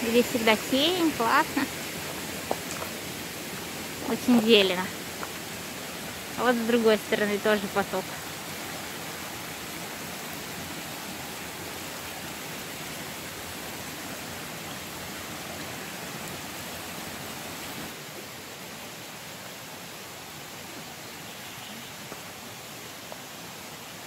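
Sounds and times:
stream running over stones: 0:00.0 - 0:24.0.

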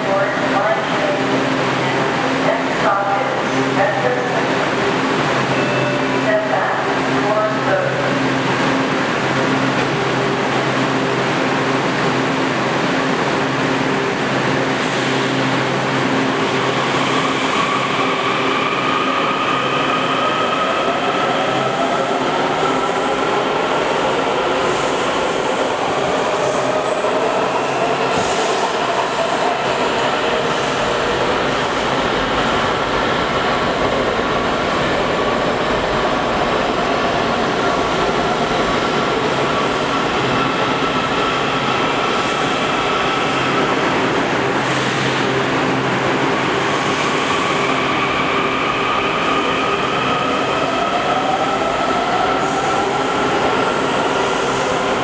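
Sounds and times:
train wheels on rails: 0:16.4 - 0:55.0.

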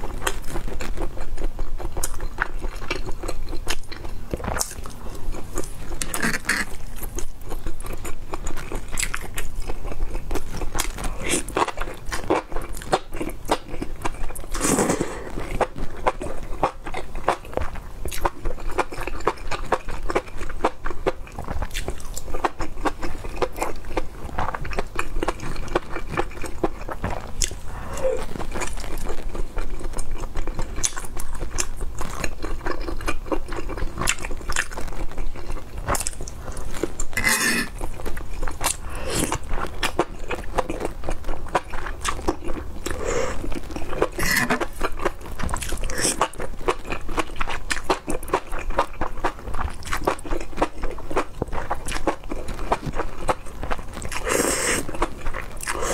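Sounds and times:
wet chewing and smacking: 0:00.0 - 0:55.9
slurping food: 0:54.2 - 0:54.9.

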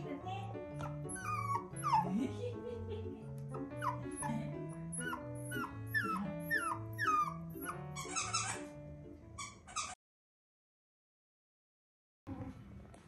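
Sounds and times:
background music: 0:00.0 - 0:09.6
puppy whimpering: 0:00.8 - 0:02.4, 0:03.5 - 0:08.7.

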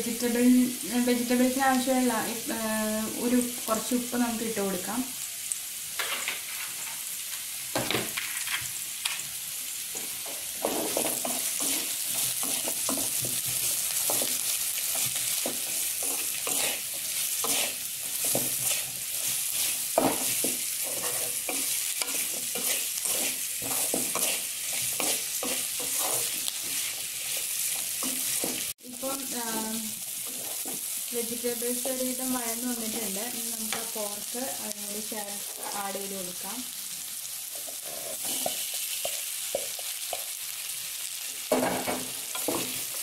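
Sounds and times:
vegetables sizzling in hot oil: 0:00.0 - 0:43.0
wooden spatula scraping pan: 0:10.0 - 0:28.8, 0:29.6 - 0:30.9, 0:35.3 - 0:36.0, 0:37.5 - 0:39.8.

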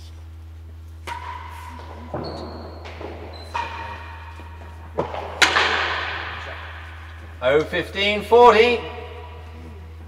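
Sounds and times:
ball knocking off rackets and walls: 0:01.0 - 0:07.4.

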